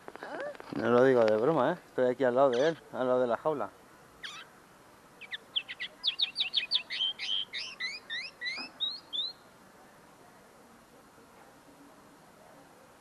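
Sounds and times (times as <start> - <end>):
linnet twittering song: 2.5 - 2.9, 4.2 - 4.5, 5.2 - 9.5.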